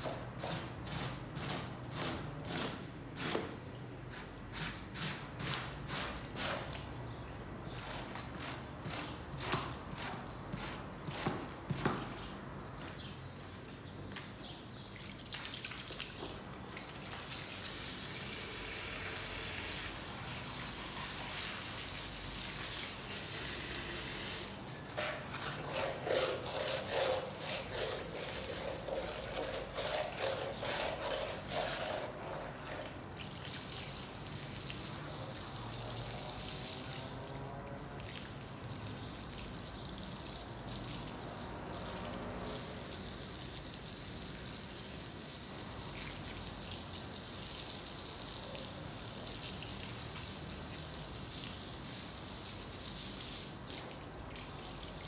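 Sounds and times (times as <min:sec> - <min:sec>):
garden hose water splashing: 0:14.3 - 0:55.0
hands rubbing wet soapy rug: 0:25.0 - 0:33.3.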